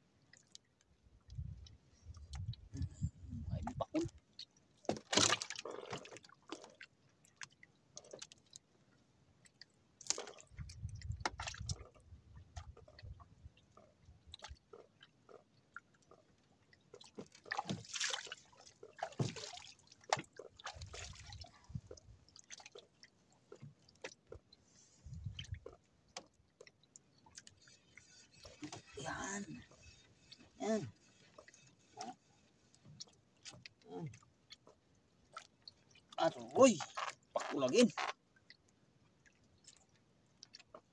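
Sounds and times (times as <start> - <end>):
light water splashes: 0.0 - 40.9.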